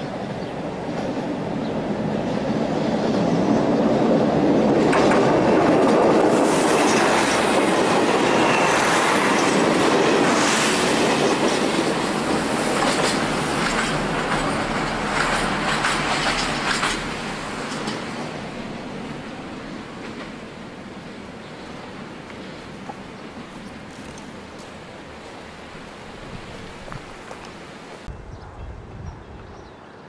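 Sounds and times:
train wheels clattering over rail joints: 4.7 - 18.6.

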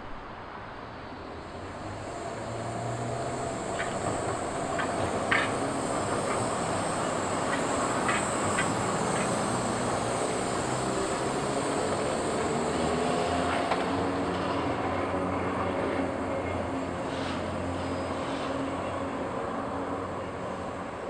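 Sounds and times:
streetcar humming: 0.0 - 21.0
wheels clicking on rails: 2.0 - 15.2.

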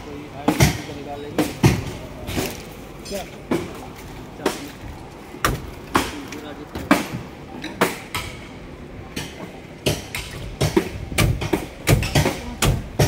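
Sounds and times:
footsteps in wet mud: 2.3 - 6.7.

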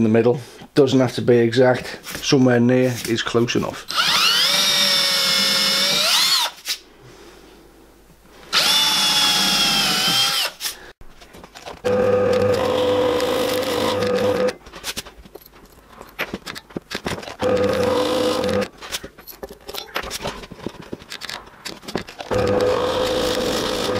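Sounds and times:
cordless drill drilling: 3.9 - 6.6, 8.5 - 10.6, 11.9 - 14.5, 17.4 - 18.7, 22.3 - 23.9
pillar drill humming: 11.9 - 14.5, 17.4 - 18.7, 22.3 - 23.9.

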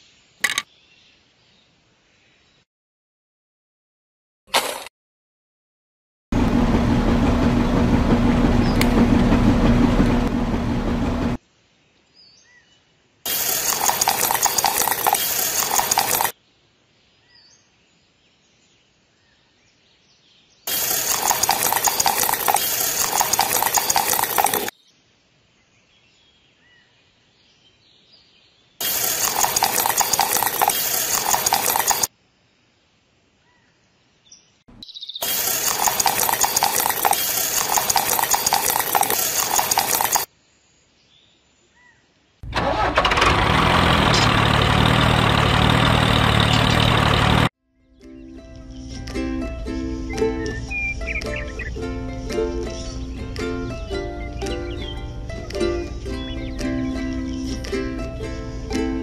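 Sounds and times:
small motor humming: 13.3 - 16.3, 20.7 - 24.7, 28.8 - 32.1, 35.2 - 40.3.

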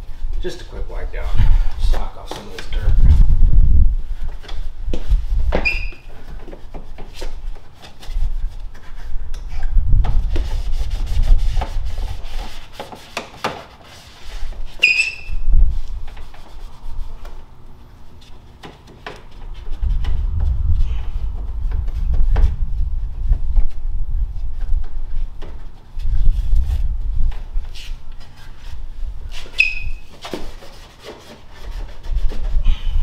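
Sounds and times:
short high squeaks: 5.6 - 6.1, 14.8 - 15.4, 29.5 - 30.1.

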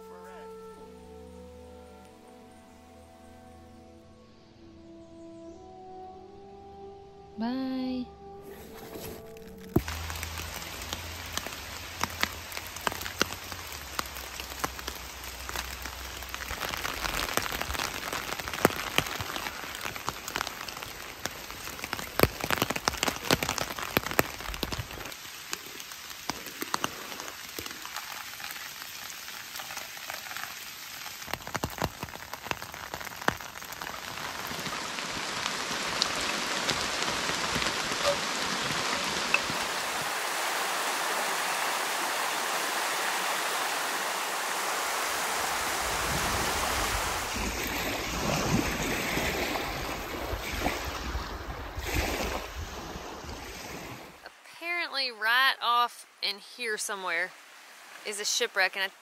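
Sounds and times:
steady rain falling: 0.0 - 3.5, 8.8 - 59.0
stream rushing: 9.1 - 59.0
single raindrop hits: 9.2 - 25.7.

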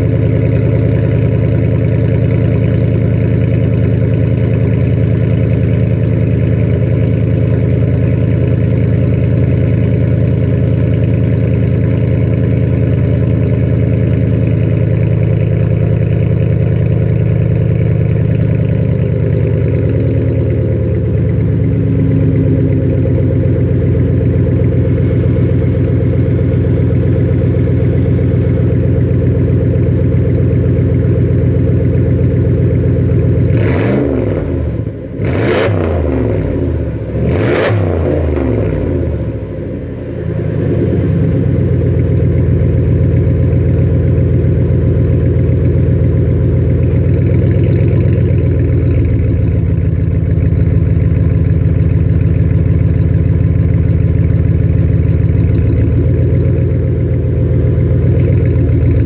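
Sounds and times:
car engine idling loudly: 0.0 - 59.0
car engine revving: 17.0 - 59.0.

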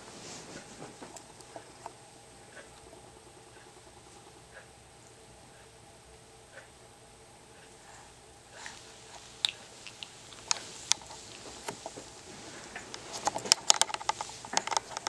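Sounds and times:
baby moving on a bed sheet: 0.0 - 1.8.

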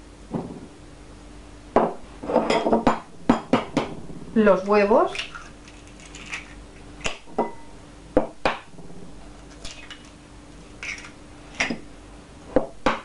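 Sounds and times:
faint steady hum: 0.0 - 13.0
eggs cracking against bowl: 5.1 - 7.3, 10.8 - 11.2.

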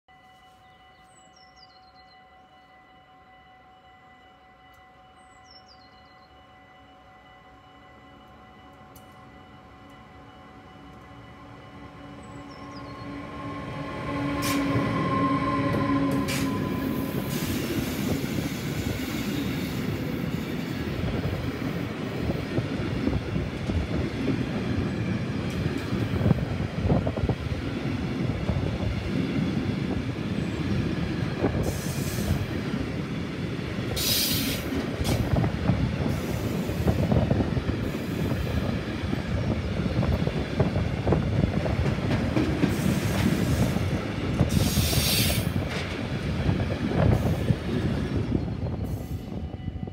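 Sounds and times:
electric locomotive humming: 0.1 - 49.9
train wheels rumbling on rails: 8.2 - 49.9
train wheels clacking: 13.8 - 30.1, 30.7 - 49.2.

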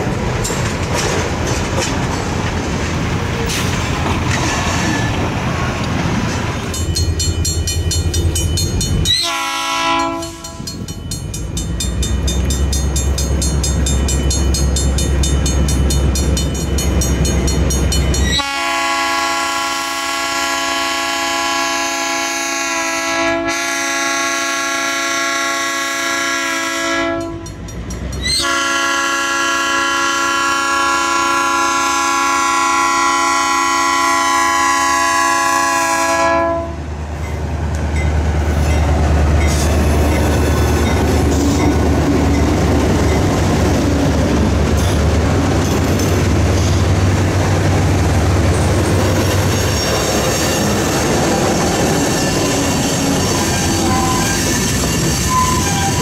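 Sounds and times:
locomotive engine rumble: 0.0 - 21.2, 34.6 - 56.0
crossing bell dinging: 6.6 - 18.7, 27.1 - 28.4, 37.2 - 43.7, 48.5 - 56.0
locomotive horn blasts: 9.0 - 10.8, 18.2 - 27.6, 28.3 - 36.8, 51.8 - 56.0.

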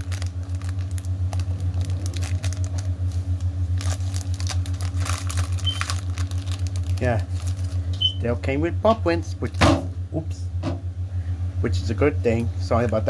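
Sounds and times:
plastic packaging crinkling: 0.0 - 8.0
steady low pulsing hum: 0.0 - 13.0.

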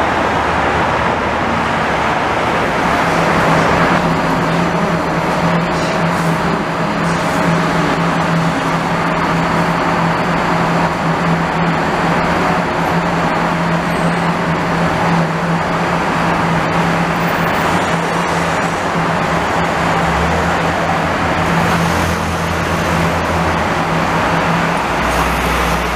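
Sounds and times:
passing cars rushing: 0.0 - 25.9.

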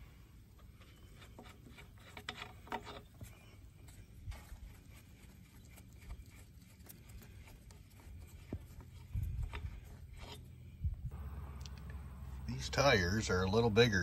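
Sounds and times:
lug nut clicking and scraping: 0.5 - 3.3, 8.4 - 10.8.

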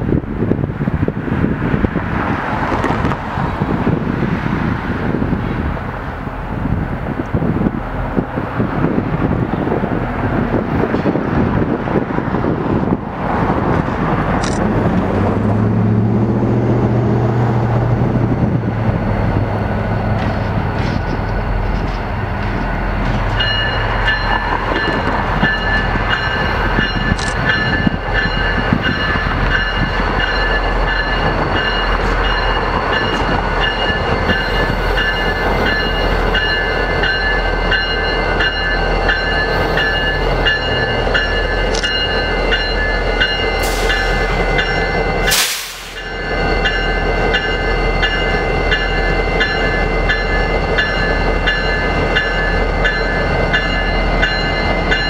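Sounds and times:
diesel locomotives rolling past: 0.0 - 55.0
locomotive bell ringing: 18.9 - 55.0.

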